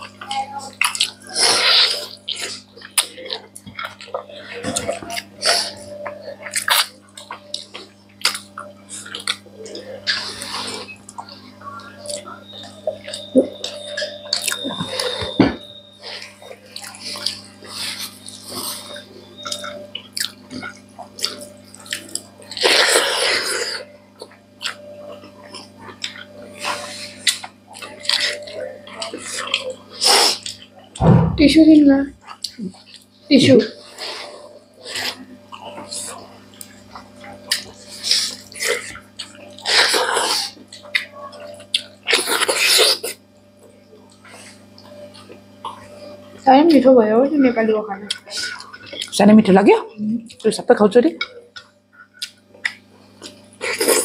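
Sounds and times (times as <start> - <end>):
wet chewing and lip smacks: 16.1 - 23.1, 35.0 - 43.2, 51.2 - 54.0.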